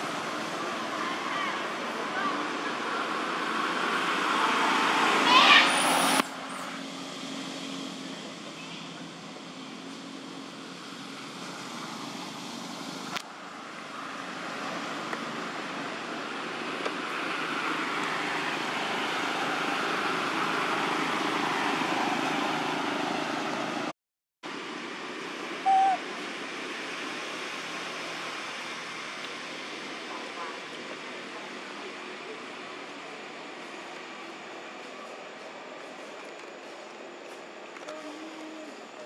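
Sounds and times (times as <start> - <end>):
short loud tonal call: 25.6 - 26.0.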